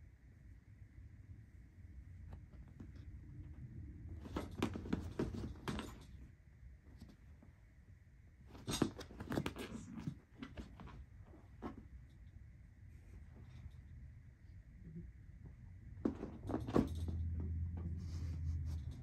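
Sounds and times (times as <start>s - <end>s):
cat claws scratching padded seat: 8.5s - 12.0s.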